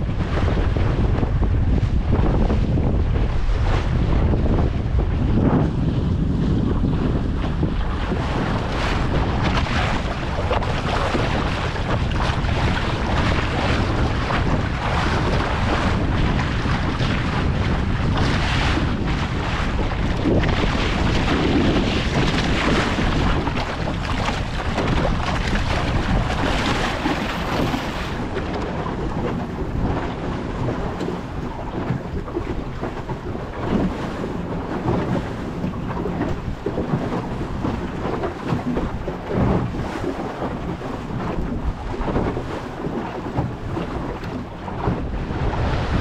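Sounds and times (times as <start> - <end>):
water rushing along a hull: 0.0 - 46.0
wind buffeting microphone: 0.0 - 46.0.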